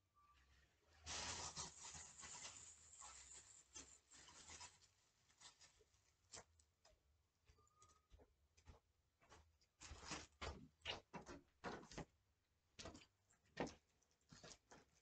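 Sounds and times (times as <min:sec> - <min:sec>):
paper rustling: 0:01.1 - 0:06.5.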